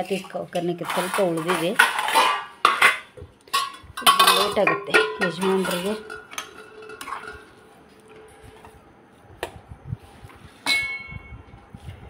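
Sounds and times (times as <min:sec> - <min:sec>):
spoon scraping a pan: 0:00.1 - 0:07.6.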